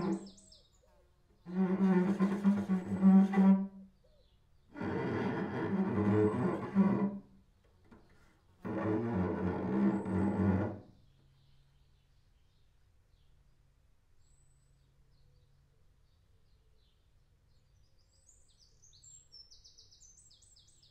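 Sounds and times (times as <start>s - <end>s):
bowed cello notes: 1.5s - 3.8s, 4.8s - 7.2s.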